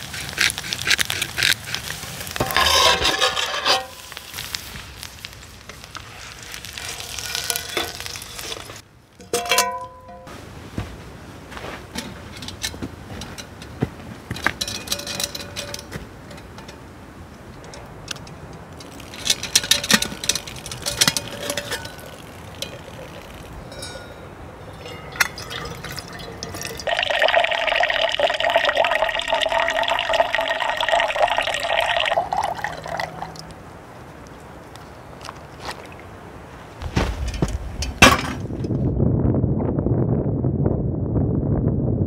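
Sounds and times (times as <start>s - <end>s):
clinks and knocks: 2.4s - 4.0s, 7.2s - 10.3s, 11.9s - 16.8s, 17.6s - 27.4s
water pouring into a metal pot: 24.7s - 33.4s.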